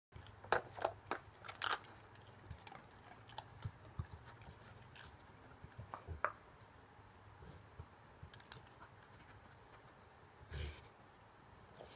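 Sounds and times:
plastic pieces clicking and clattering: 0:00.2 - 0:02.9
dog chewing treats: 0:00.2 - 0:06.4.

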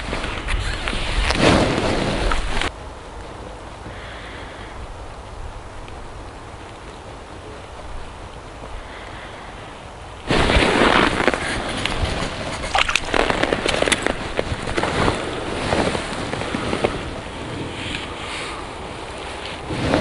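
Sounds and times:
steady hiss: 0:00.0 - 0:20.0
wind buffeting microphone: 0:00.0 - 0:20.0
clothing and hand handling noise: 0:10.2 - 0:20.0.

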